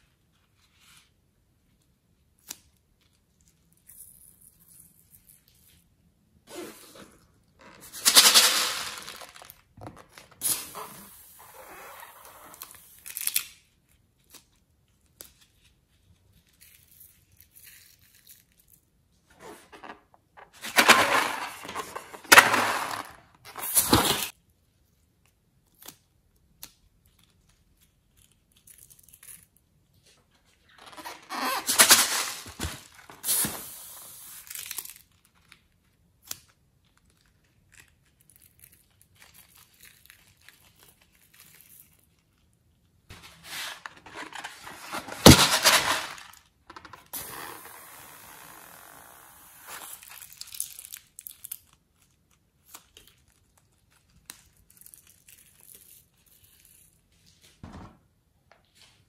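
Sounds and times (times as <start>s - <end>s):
crinkly rustling of balloon: 27.3s - 33.4s, 36.8s - 57.6s.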